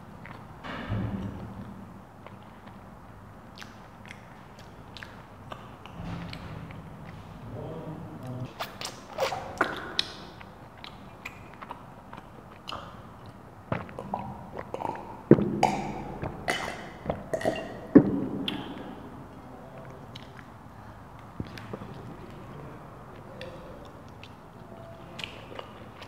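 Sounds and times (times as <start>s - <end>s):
wet mouth clicks: 3.5s - 7.2s, 8.2s - 22.5s, 23.1s - 26.0s
swallowing gulps: 8.2s - 26.0s.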